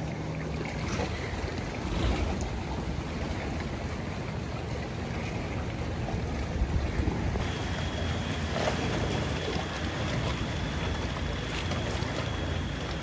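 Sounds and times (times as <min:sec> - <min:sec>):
water lapping around boat: 0:00.0 - 0:13.0
wind buffeting microphone: 0:00.8 - 0:07.6.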